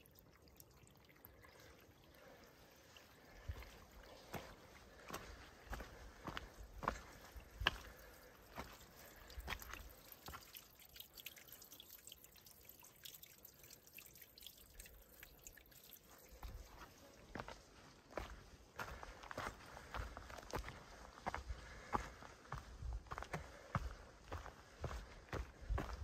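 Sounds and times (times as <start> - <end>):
footsteps on rocky dirt trail: 3.4 - 10.5, 16.3 - 26.0.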